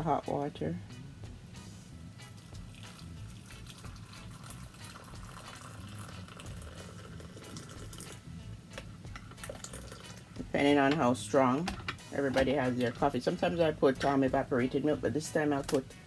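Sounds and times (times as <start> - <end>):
hot water pouring into a cup: 2.3 - 8.3, 9.2 - 10.4.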